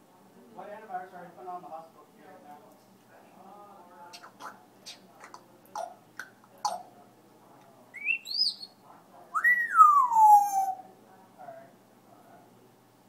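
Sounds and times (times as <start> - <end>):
parrot whistling: 8.0 - 8.7, 9.4 - 10.8.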